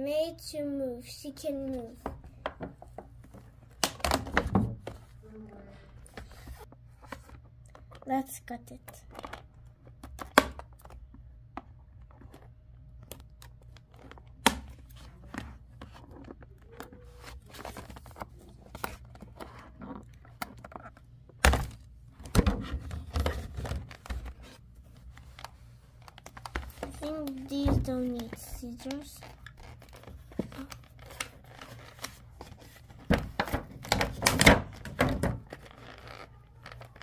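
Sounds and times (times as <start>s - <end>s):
knocking and handling noise: 1.9s - 5.2s, 9.1s - 37.0s
packaging rustling and crinkling: 22.8s - 37.0s.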